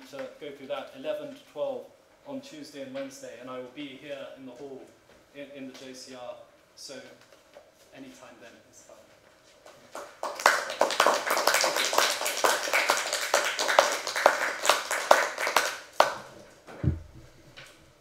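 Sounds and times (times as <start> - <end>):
audience applauding: 10.0 - 16.3
dull low thump: 16.7 - 17.7.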